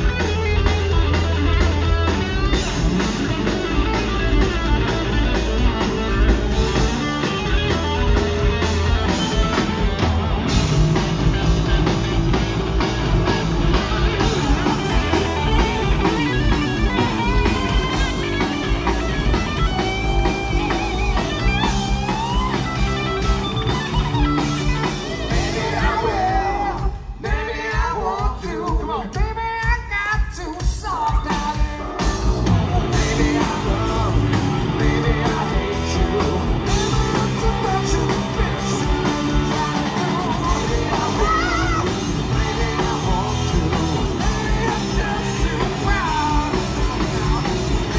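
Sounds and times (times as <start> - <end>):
lead guitar sliding bent notes: 0.0 - 26.3
live rock band playing: 0.0 - 47.9.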